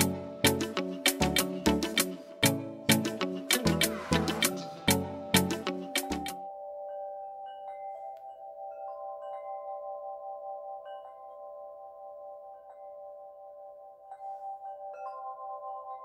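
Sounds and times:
held ambient tones: 0.0 - 7.2
wind-chime notes: 0.0 - 16.0.

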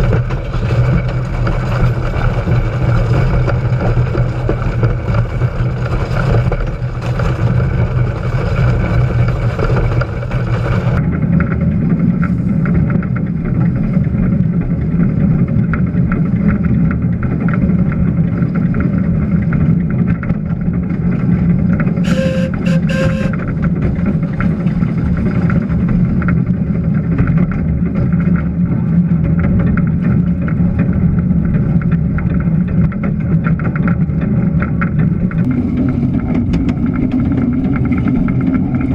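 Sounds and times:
locomotive rumbling: 0.0 - 38.9
high-pitched whistle blasts: 22.0 - 23.4.

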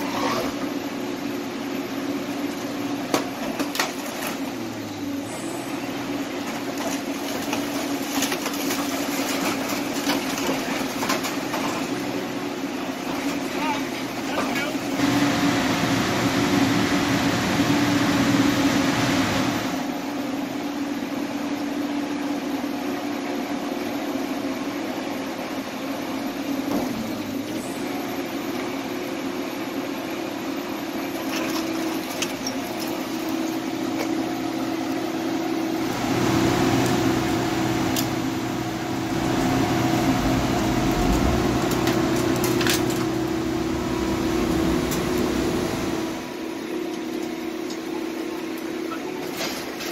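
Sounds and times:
diesel engine hum: 1.4 - 20.1, 25.9 - 46.6.

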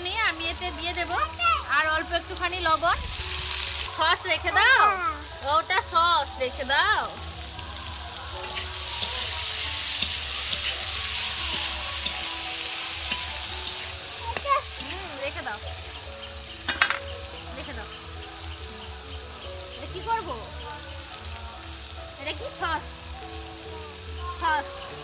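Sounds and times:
vegetables sizzling in hot oil: 0.0 - 25.0
spatula clicking against pan: 11.4 - 12.3.

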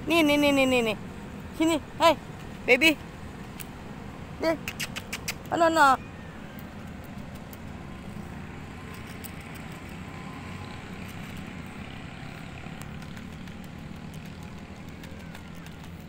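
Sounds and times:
distant city traffic rumble: 0.0 - 16.0.

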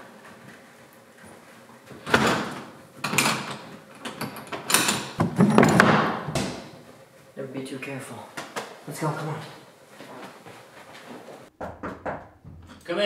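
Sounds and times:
door swinging shut: 4.8 - 6.7
wooden bar knocking: 11.6 - 12.9.

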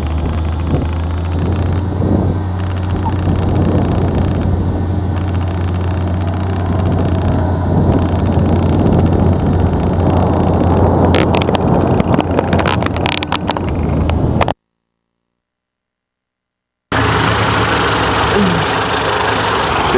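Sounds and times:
plane piston engine running: 0.0 - 12.5, 16.9 - 19.9
sharp crackles: 0.0 - 14.6
wind noise on microphone: 0.0 - 14.6.

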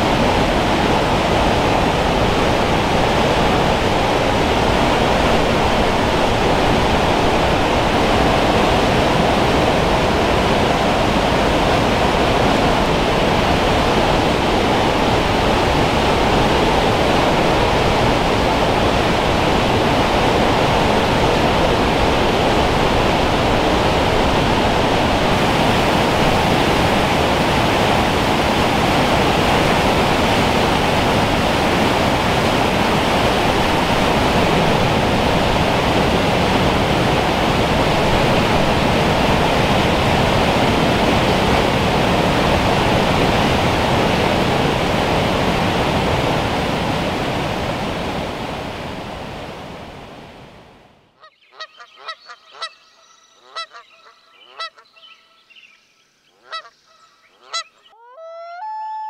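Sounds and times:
water rushing over rocks: 0.0 - 49.8
geese honking: 51.2 - 55.5, 56.4 - 59.0.

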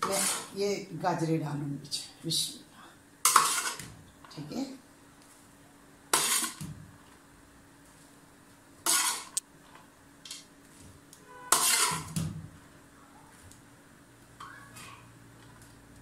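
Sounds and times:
spoon scraping metal bowl: 0.0 - 0.6, 3.3 - 3.8, 6.2 - 6.6, 11.4 - 12.2.

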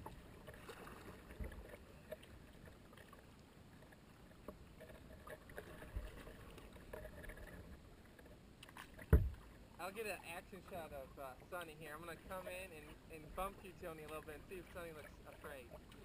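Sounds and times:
paddle blades dipping: 0.0 - 16.0
water dripping and lapping: 0.0 - 16.0
soft low thumps: 9.1 - 9.4.

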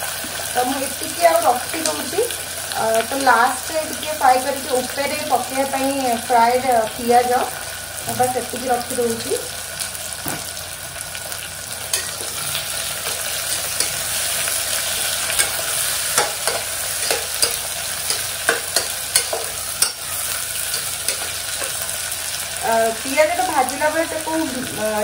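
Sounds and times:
onions sizzling in oil: 0.0 - 25.0
utensil scraping pot: 11.9 - 22.1.

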